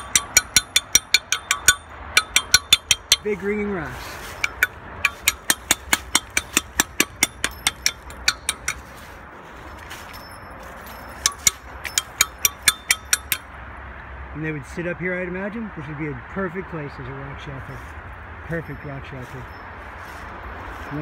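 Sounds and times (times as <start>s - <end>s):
rocks struck ringing metallically: 0.0s - 9.1s, 10.1s - 13.6s.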